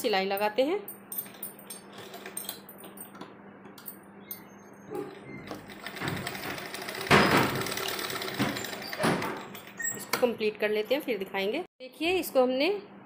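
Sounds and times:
sewing machine stitching: 5.0s - 10.1s.

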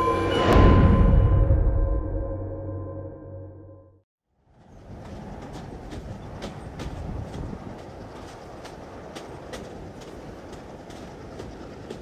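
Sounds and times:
gong-like ringing tones: 0.0s - 4.0s.

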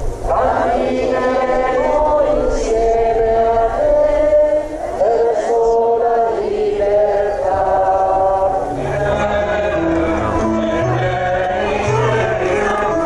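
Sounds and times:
crowd singing a slow hymn: 0.0s - 13.0s.

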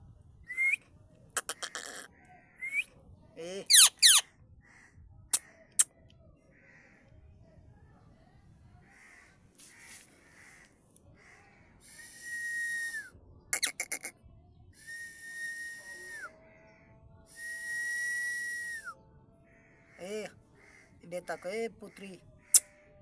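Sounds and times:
parrot whistling: 0.5s - 0.8s, 3.7s - 4.2s
parrot squawking harshly: 1.4s - 2.1s, 3.6s - 4.2s, 13.6s - 14.1s.

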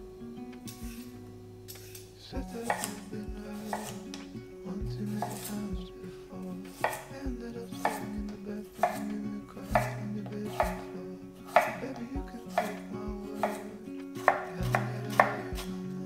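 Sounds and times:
knife slicing carrot on board: 0.7s - 4.2s, 5.1s - 5.7s, 6.7s - 7.1s, 7.8s - 8.2s, 8.8s - 10.8s, 11.5s - 15.7s.

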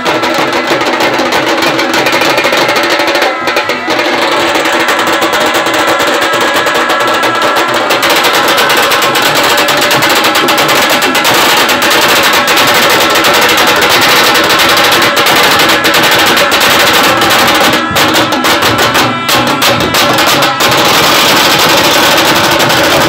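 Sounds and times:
band playing fast drumming: 0.0s - 23.0s.

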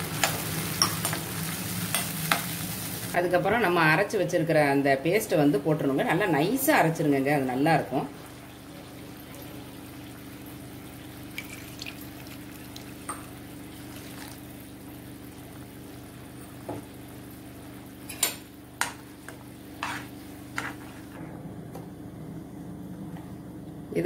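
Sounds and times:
steady low hum: 5.3s - 24.0s
gravy bubbling in a wok: 8.1s - 18.1s.

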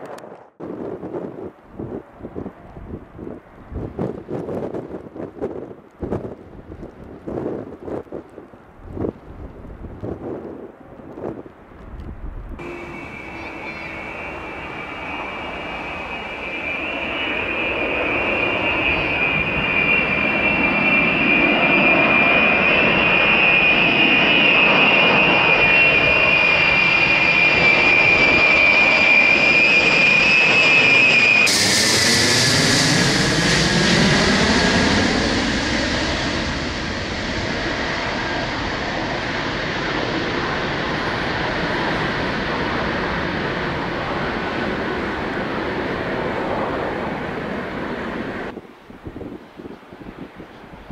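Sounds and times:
jet engines whining: 12.6s - 48.6s.

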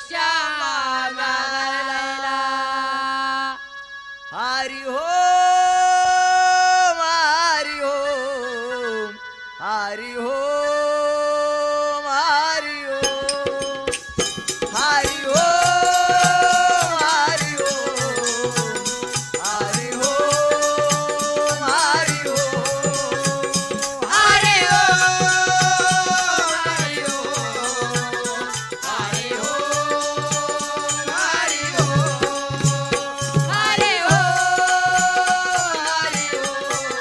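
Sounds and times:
hand drum percussion: 13.0s - 37.0s.

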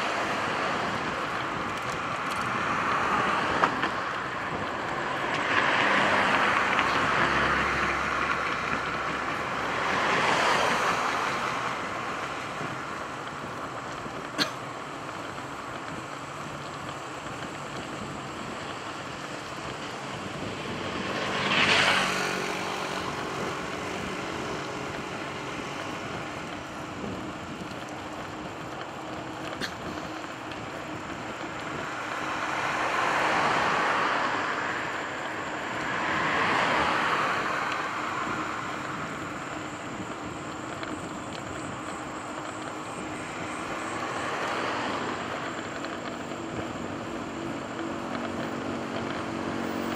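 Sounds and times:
road noise rush: 0.0s - 49.9s
vehicles passing: 0.0s - 49.9s.

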